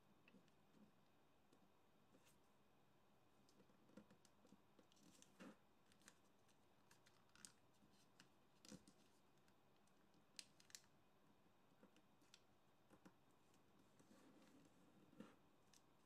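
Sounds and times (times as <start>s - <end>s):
paper crinkling and clicking: 3.5s - 9.6s, 10.3s - 11.0s.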